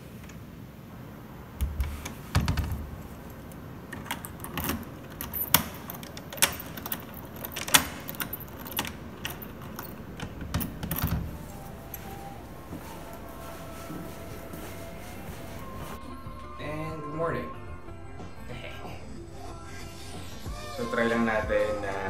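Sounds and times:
key clicking in door lock: 0:01.6 - 0:12.3
keys jangling: 0:01.7 - 0:13.2.

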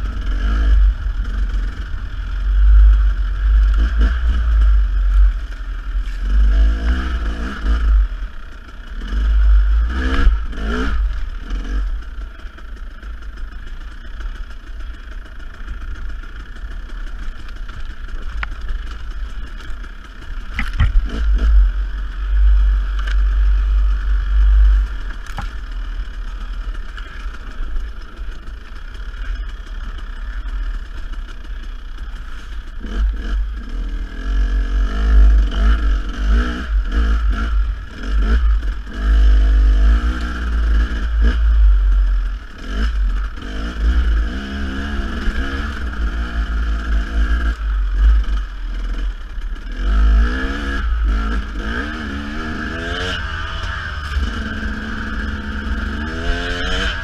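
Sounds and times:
dirt bike engine revving: 0:00.0 - 0:57.0
sharp knocks and clatter: 0:20.5 - 0:21.6.

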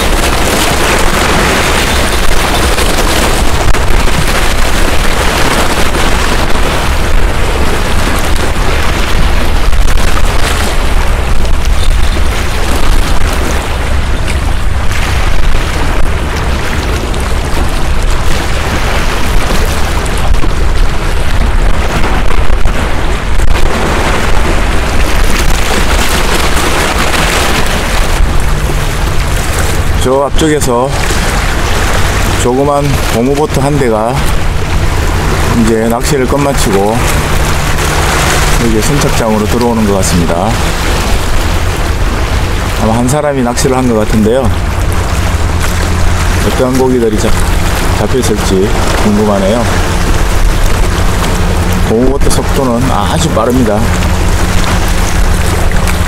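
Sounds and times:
waves washing against rocks: 0:00.0 - 0:56.0
wind buffeting microphone: 0:00.0 - 0:56.0.

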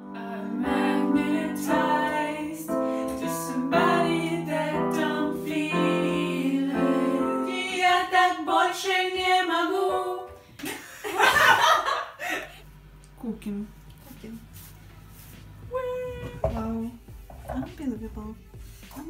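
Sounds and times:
electronic keyboard melody: 0:00.0 - 0:07.8
person singing: 0:00.0 - 0:10.4.

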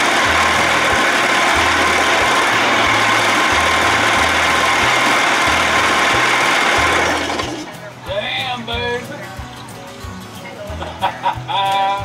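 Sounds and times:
outboard motor running: 0:00.0 - 0:08.0
faint background music: 0:02.8 - 0:12.0.

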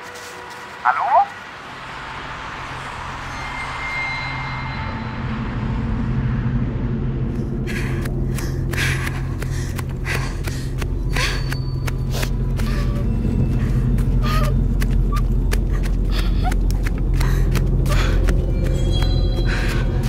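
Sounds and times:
low droning score: 0:00.0 - 0:20.0
heavy panting breaths: 0:07.6 - 0:18.5.

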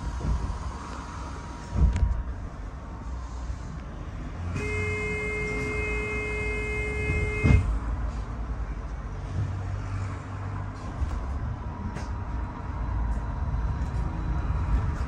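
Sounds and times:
bus rumbling: 0:00.0 - 0:15.0
heavy thud: 0:04.6 - 0:07.7.

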